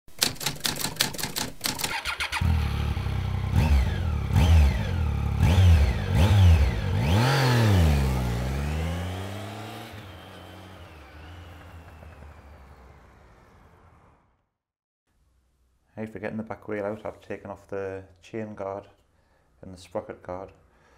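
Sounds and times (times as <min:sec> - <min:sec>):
rapid sharp clicks: 0:00.1 - 0:02.2
motorcycle engine revving: 0:01.8 - 0:14.4.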